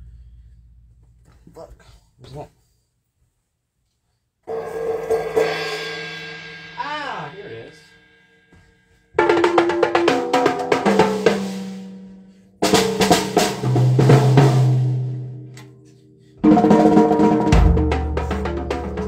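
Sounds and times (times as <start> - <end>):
drum kit hits: 12.6 - 15.4, 16.4 - 19.0.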